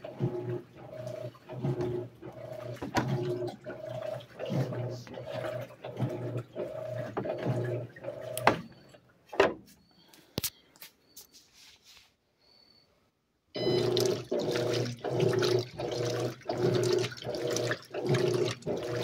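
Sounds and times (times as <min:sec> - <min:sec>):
washing machine motor humming in pulses: 0:00.0 - 0:09.0, 0:13.6 - 0:19.0.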